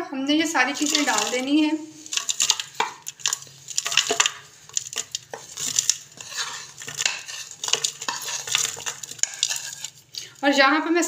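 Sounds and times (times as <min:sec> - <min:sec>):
utensil scraping a plate: 0:00.8 - 0:10.0.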